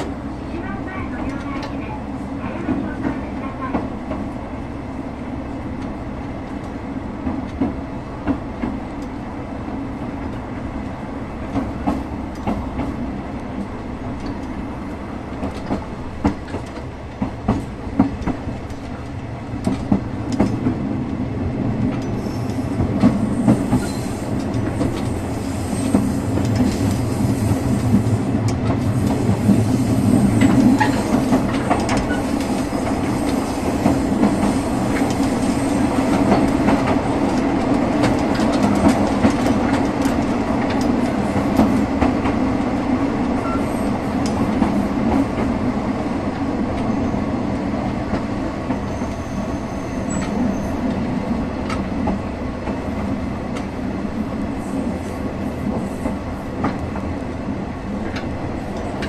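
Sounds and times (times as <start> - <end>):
railcar engine rumble: 0.0 - 59.0
wheels clicking over rail joints: 27.8 - 42.4.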